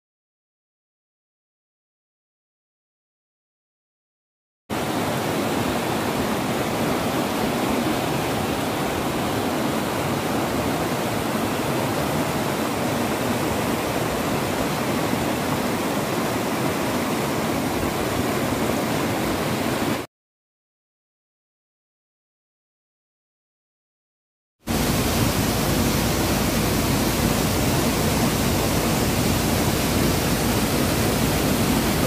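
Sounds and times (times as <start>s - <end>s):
stream rushing over stones: 4.7s - 20.1s, 24.7s - 32.0s.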